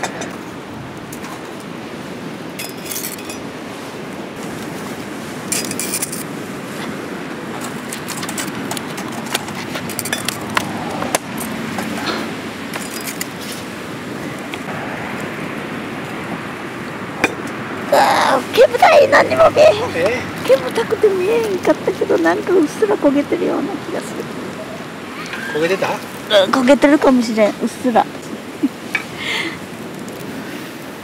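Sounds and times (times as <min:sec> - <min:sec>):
fire crackling: 0:00.0 - 0:31.0
metal tongs clinking: 0:05.5 - 0:06.3, 0:09.8 - 0:10.6, 0:12.7 - 0:13.3.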